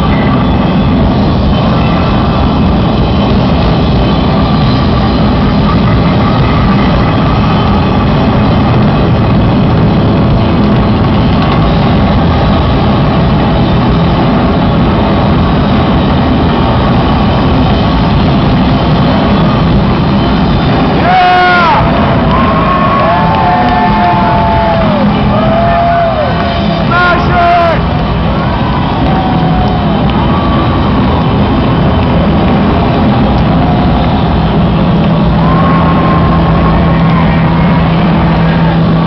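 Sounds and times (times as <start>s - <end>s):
distorted electric guitar noise: 0.0s - 39.0s
guitar feedback tones: 0.0s - 39.0s.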